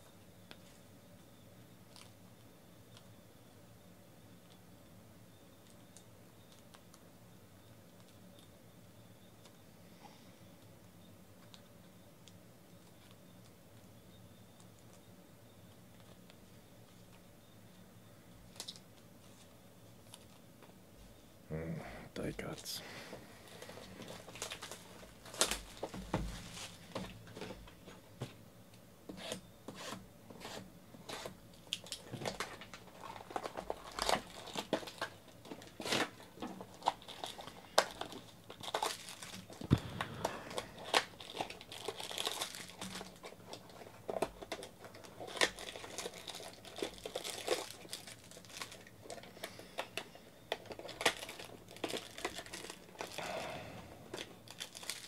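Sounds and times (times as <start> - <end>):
packaging crinkling and tearing: 23.4 - 27.5, 31.1 - 55.0.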